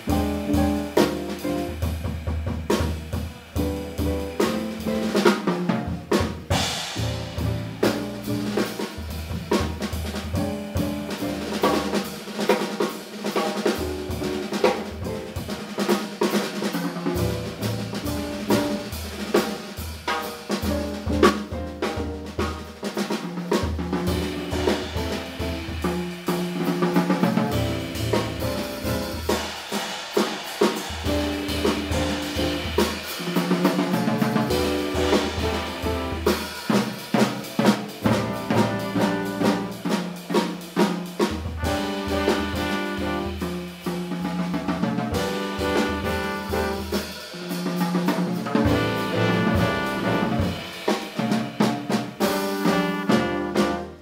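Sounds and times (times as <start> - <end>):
jazz drum kit: 0.0 - 54.0
piano: 0.0 - 54.0
upright bass: 6.9 - 8.6, 17.2 - 18.9, 27.6 - 29.2, 48.7 - 50.5.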